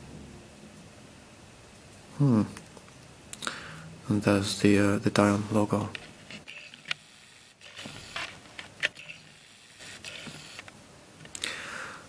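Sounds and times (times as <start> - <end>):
light rubbing of plastic: 7.6 - 10.7.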